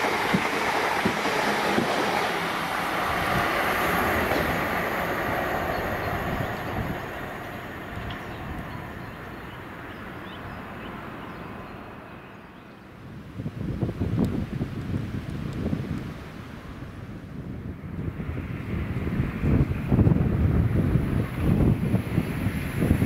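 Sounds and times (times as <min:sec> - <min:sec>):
train wheels clattering over rails: 0:00.0 - 0:09.1
train passing: 0:00.0 - 0:13.9.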